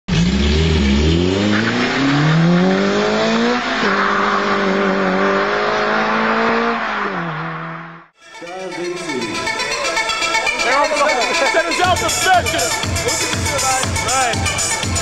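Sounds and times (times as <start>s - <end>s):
racing car engine accelerating: 0.1s - 8.1s.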